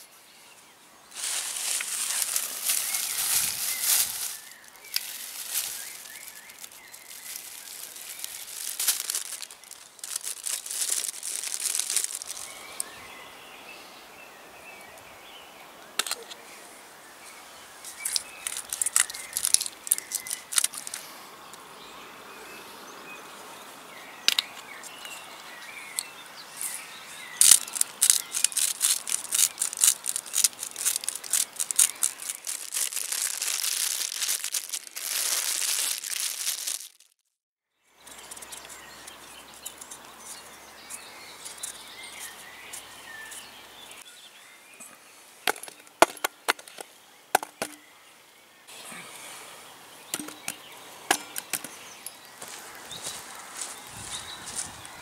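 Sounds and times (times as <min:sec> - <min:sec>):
birds chirping: 0:00.0 - 0:36.8, 0:38.0 - 0:55.0
plastic wrapping crinkling: 0:01.1 - 0:12.8, 0:18.0 - 0:21.0, 0:27.4 - 0:37.2, 0:50.2 - 0:51.7.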